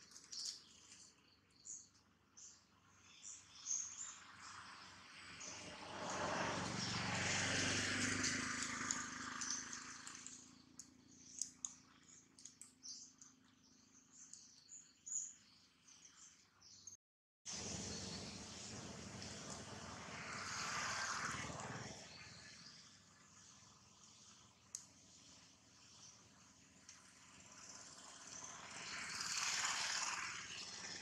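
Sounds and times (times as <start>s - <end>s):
small birds chirping: 0.0s - 5.7s, 8.5s - 17.0s, 20.5s - 31.0s
light clicks and ticks: 8.6s - 13.4s.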